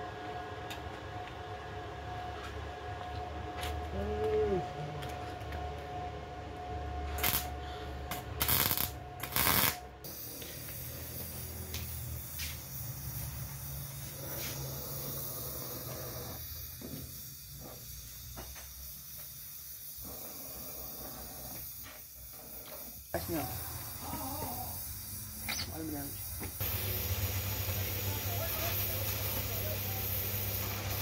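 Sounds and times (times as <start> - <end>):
gas torch hissing: 7.1 - 31.0.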